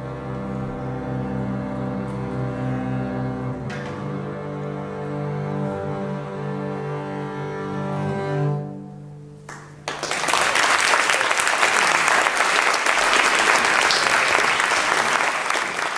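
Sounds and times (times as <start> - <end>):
double basses holding bowed chord: 0.0 - 9.5
audience applause: 9.5 - 15.9.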